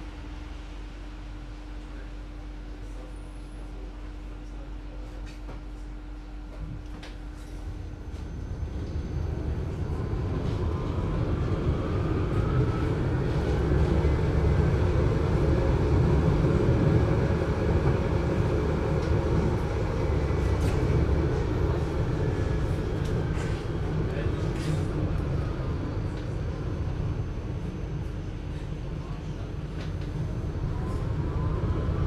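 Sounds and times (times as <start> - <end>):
tram electric drive whine: 0.0 - 32.0
tram running gear rumble: 6.5 - 32.0.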